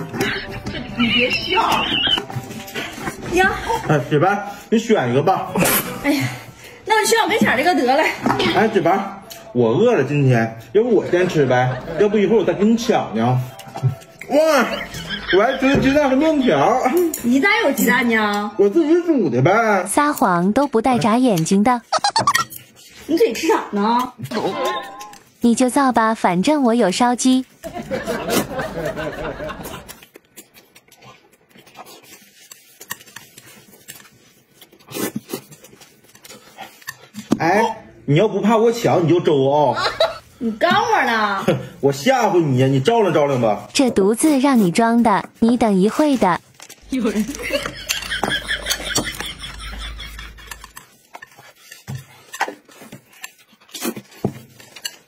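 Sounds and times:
soft chewing: 0:29.6 - 0:37.3
utensils clicking on plates: 0:47.3 - 0:55.0.

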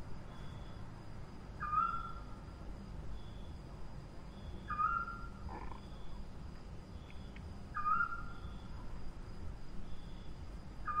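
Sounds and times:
owl calling: 0:01.6 - 0:02.2, 0:04.6 - 0:05.8, 0:07.7 - 0:08.5.

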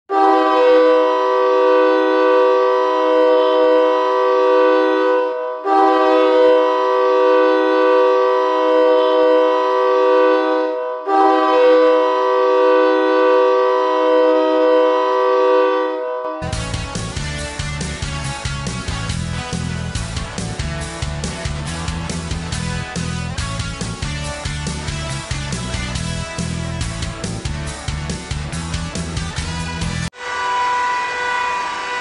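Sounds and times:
hockey goal horn blasts: 0:00.1 - 0:26.6, 0:29.3 - 0:32.0.

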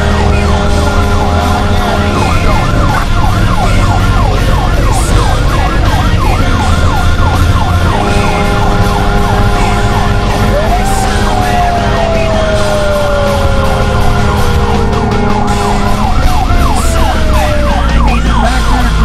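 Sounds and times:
fire truck siren yelping: 0:00.0 - 0:19.0
steady low siren tone: 0:00.0 - 0:19.0
truck engine drone: 0:00.0 - 0:19.0.

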